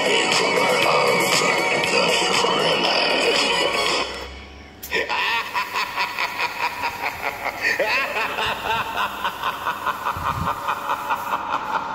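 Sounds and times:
rapid cackling laughter: 0:04.9 - 0:11.9.

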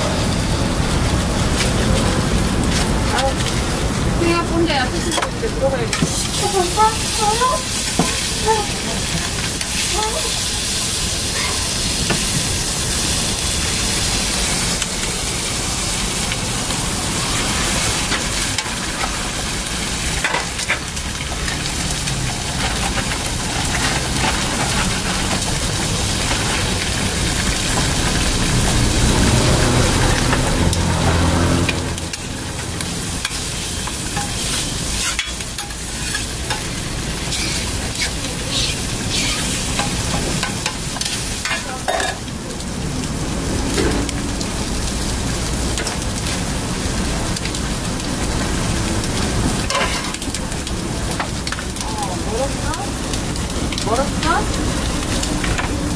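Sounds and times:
food sizzling on griddle: 0:00.0 - 0:55.9
spatula and tongs clacking: 0:11.3 - 0:12.2, 0:31.7 - 0:42.2, 0:49.7 - 0:50.3.

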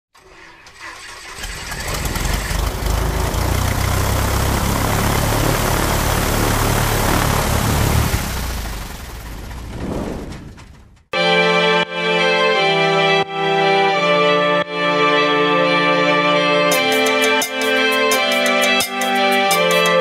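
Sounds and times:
aircraft piston engine running: 0:00.8 - 0:09.8, 0:16.7 - 0:20.0.

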